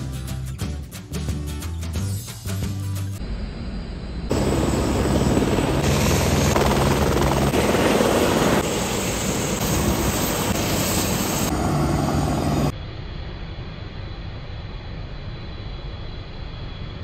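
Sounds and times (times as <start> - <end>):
helicopter rotor and turbine noise: 3.2 - 17.0.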